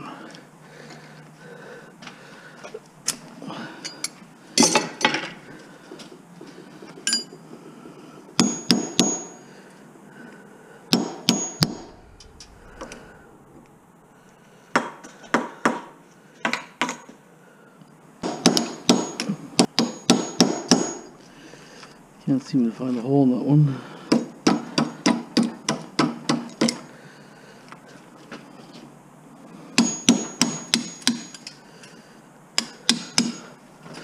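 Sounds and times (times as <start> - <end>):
hammer striking metal punch: 10.9 - 11.9.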